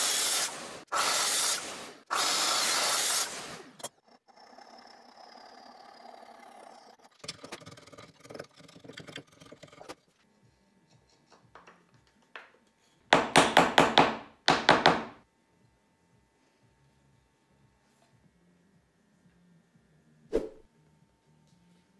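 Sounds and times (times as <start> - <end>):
hammer tapping wood: 13.2 - 15.2.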